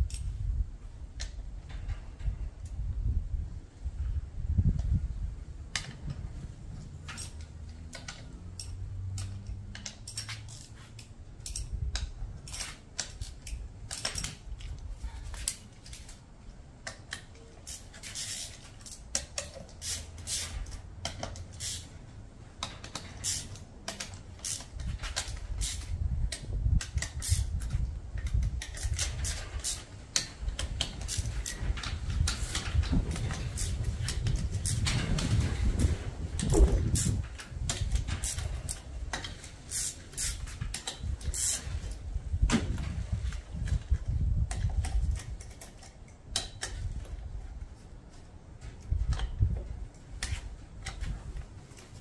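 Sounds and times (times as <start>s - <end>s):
metallic clicks of hand tools: 7.0s - 16.2s, 16.8s - 22.0s, 22.6s - 41.7s, 44.5s - 46.9s.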